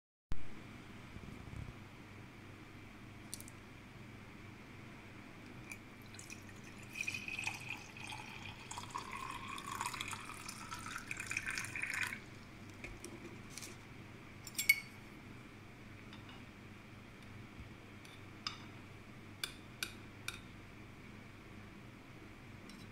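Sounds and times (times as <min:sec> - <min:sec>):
water pouring into metal pot: 0:06.1 - 0:12.3.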